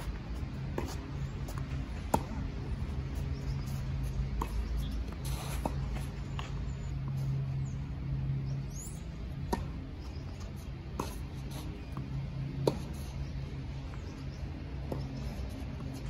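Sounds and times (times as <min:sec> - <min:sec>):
tennis ball struck by racket: 0:00.7 - 0:02.5.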